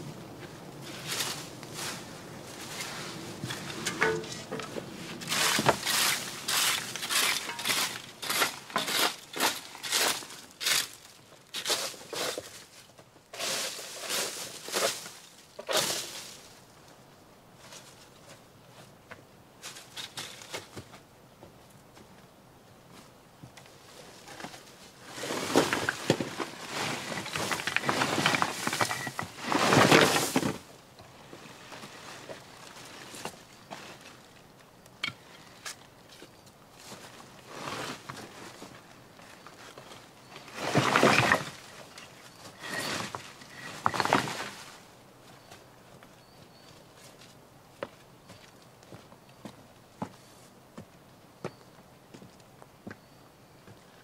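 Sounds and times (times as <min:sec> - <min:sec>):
rake scraping leaves on stony ground: 0:00.8 - 0:16.7, 0:23.8 - 0:34.3, 0:35.0 - 0:45.0.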